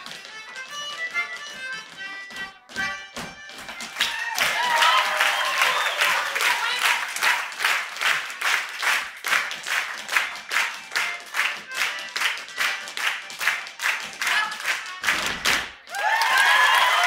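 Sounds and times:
audience clapping in time: 3.8 - 17.0
crowd cheering and whooping: 4.0 - 7.5, 15.9 - 17.0.

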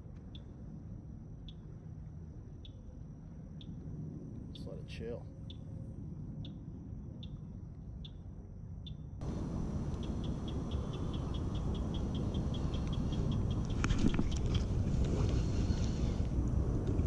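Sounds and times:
wind noise on microphone: 9.2 - 17.0.

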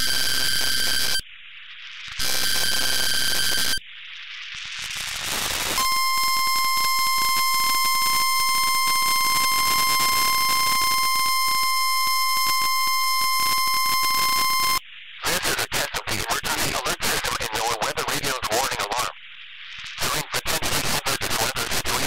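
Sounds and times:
radio static hiss: 0.0 - 22.0
digital data tone screech: 2.1 - 3.8, 5.2 - 19.2
single-pitched electronic tone: 5.8 - 14.8.

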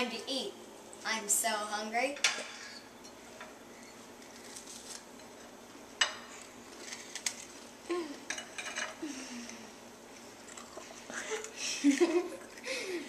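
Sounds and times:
person humming: 7.8 - 8.3.

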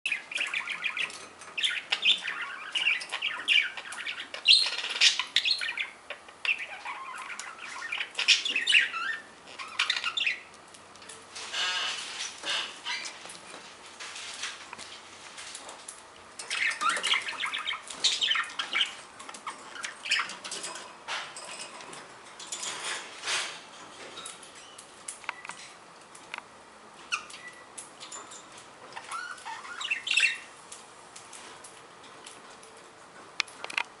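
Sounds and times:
budgerigar chirping: 0.1 - 10.4, 29.0 - 30.5.

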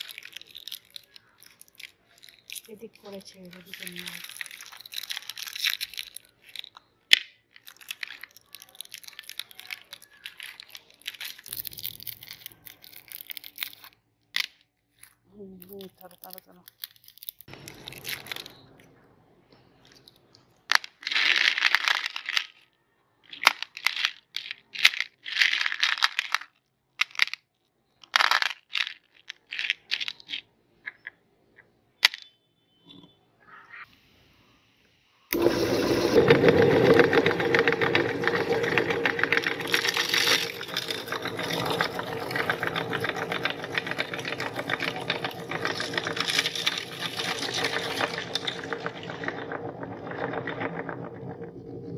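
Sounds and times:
meat grinder crunching candies: 0.0 - 6.8, 7.6 - 14.0, 35.3 - 51.9
candies clicking on ceramic plate: 0.0 - 19.0, 23.3 - 33.1, 35.3 - 51.9
candy wrappers crinkling: 0.0 - 19.1, 19.7 - 31.0, 35.3 - 51.9.

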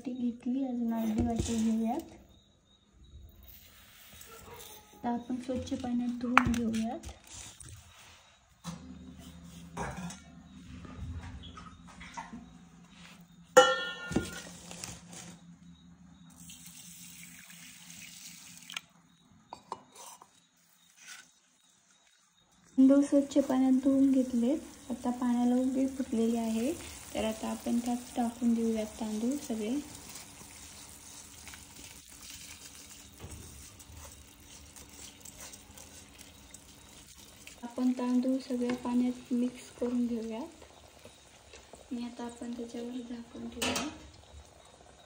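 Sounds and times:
vessel clinking: 13.6 - 14.6
water running: 16.2 - 18.9, 22.6 - 45.0.

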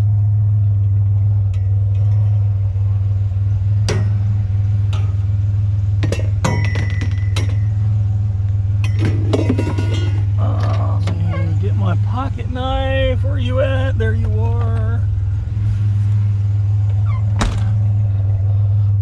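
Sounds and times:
truck engine idling: 0.0 - 19.0
scrap metal clinking: 8.8 - 10.4.

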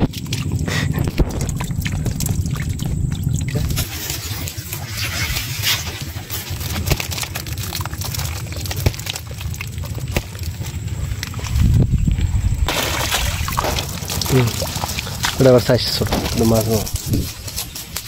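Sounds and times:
water trickling and dripping: 0.0 - 11.7, 12.7 - 16.8
low rumble: 0.0 - 18.0
shrimp clicking in a basket: 6.1 - 11.4.

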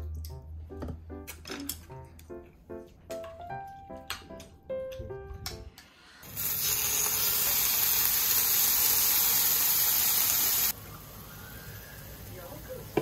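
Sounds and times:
meat sizzling on a griddle: 6.2 - 13.0.

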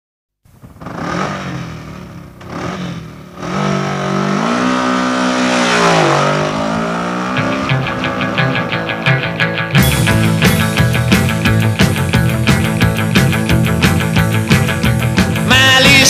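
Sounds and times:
motorcycle engine revving: 0.5 - 16.0
band playing: 5.0 - 16.0.

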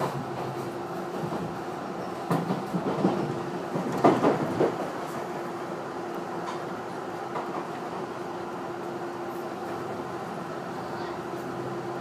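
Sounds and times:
wheels clacking over track: 0.0 - 5.4
train running noise: 0.0 - 12.0.

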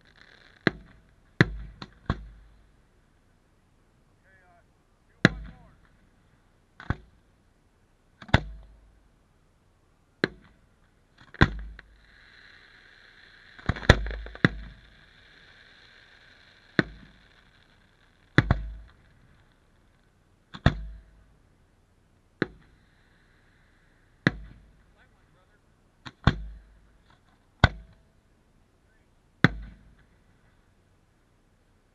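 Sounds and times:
faint hiss: 0.0 - 31.9.

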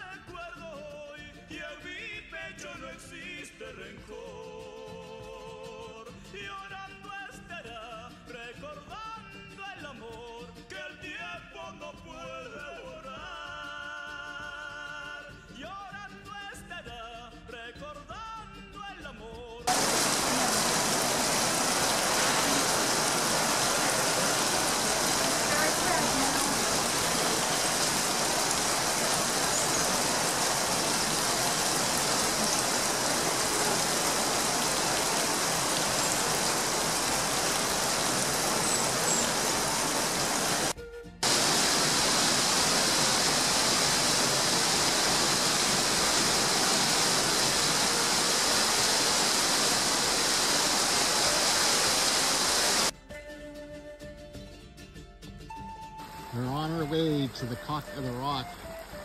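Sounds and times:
heavy rain on foliage: 19.7 - 52.9.

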